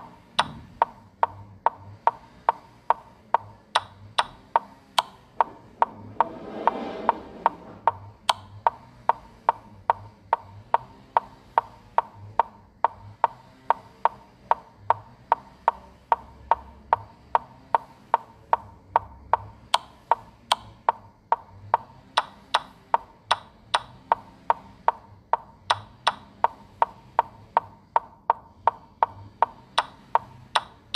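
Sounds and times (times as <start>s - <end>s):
chess move clicks: 0.0s - 30.9s
brief rushing noise: 5.9s - 7.9s.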